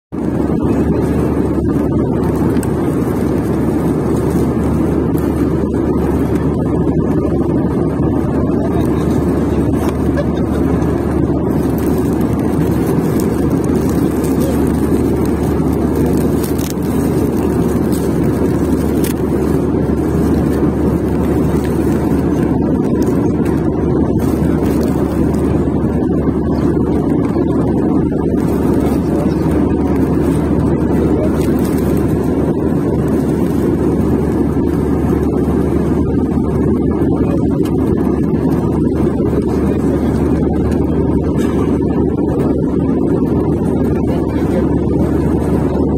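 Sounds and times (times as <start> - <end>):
airliner cabin drone: 0.1 - 45.9.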